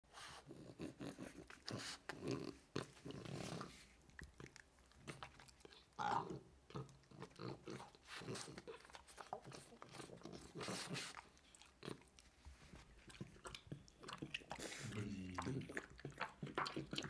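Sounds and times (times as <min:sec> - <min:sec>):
dog breathy puffs: 0:08.0 - 0:11.4.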